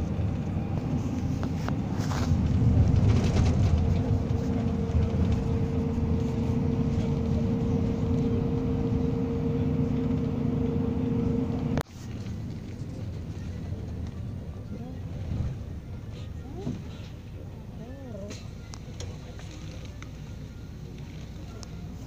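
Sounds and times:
steady whine: 0:00.0 - 0:11.8
bus engine and road drone: 0:00.0 - 0:22.0.

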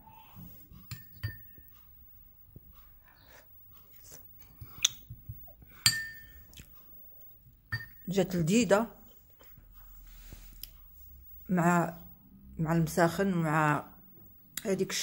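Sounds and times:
metal spoon clinking against bowl: 0:00.9 - 0:01.6, 0:05.8 - 0:06.4, 0:07.7 - 0:08.1
quiet chewing: 0:02.6 - 0:05.8, 0:06.4 - 0:07.4.

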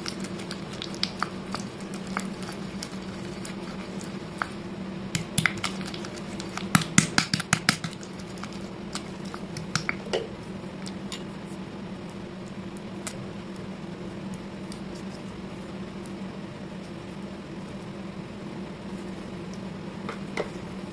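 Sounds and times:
slate pieces crunching in a bowl: 0:00.0 - 0:04.6, 0:05.2 - 0:10.0.

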